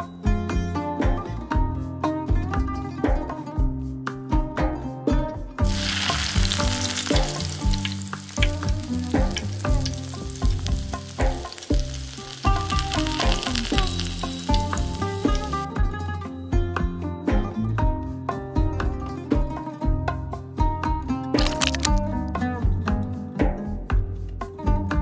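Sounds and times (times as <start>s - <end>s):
plucked-string background music: 0.0s - 25.0s
syrup bubbling in a pan: 5.6s - 15.6s.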